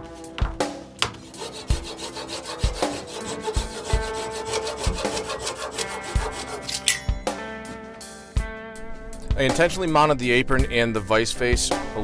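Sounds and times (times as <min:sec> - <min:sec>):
music with steady beat: 0:00.0 - 0:09.7
hand saw cutting wood: 0:01.0 - 0:06.9.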